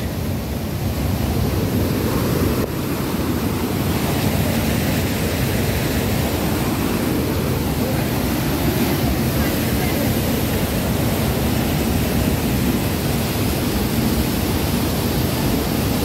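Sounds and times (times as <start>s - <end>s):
stream rushing over boulders: 0.0s - 16.0s.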